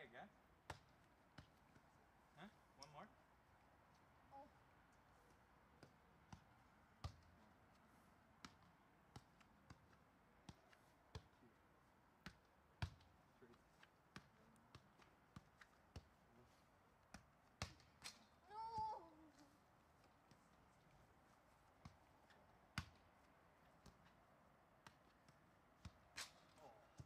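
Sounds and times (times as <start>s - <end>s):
soccer ball thuds: 0.6s - 1.9s, 5.7s - 7.4s, 8.4s - 11.4s, 12.2s - 16.2s, 20.0s - 24.2s, 24.8s - 27.0s.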